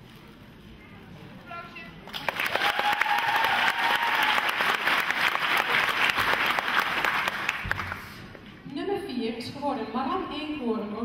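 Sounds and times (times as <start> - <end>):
audience applauding: 2.1 - 8.2.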